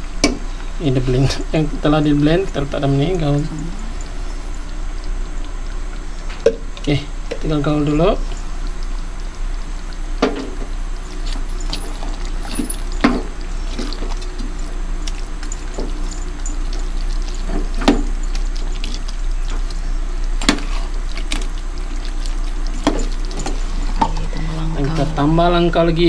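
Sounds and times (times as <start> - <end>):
low steady hum: 0.0 - 26.0
spatula squishing and scraping: 11.0 - 25.4.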